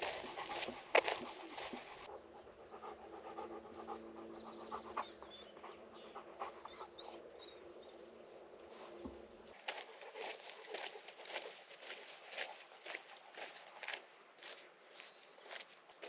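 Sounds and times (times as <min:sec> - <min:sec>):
faint panting breaths: 0:00.0 - 0:07.3, 0:09.5 - 0:14.0.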